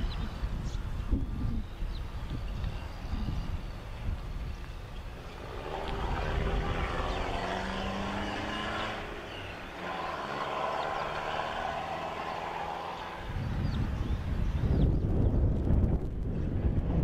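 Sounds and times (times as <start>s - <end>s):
distant engine running: 2.8s - 14.8s.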